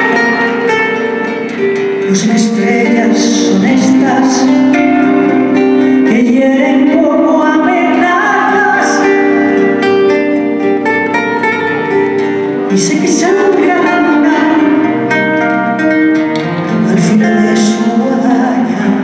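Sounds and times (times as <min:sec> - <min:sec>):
plucked acoustic guitar: 0:00.0 - 0:19.0
woman singing: 0:02.1 - 0:09.8, 0:12.7 - 0:15.1, 0:16.8 - 0:19.0.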